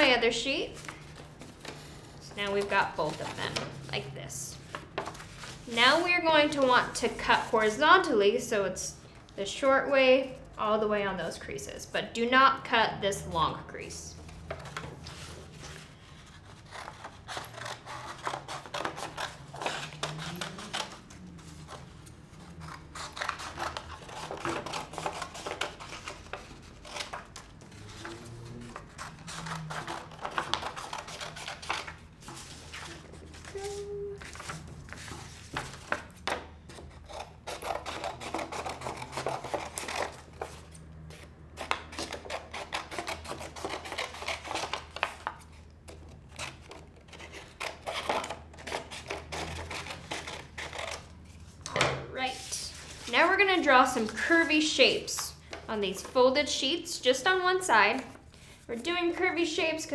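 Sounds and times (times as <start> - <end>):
scissors snipping paper: 16.2 - 27.5, 28.8 - 32.0, 36.7 - 51.1.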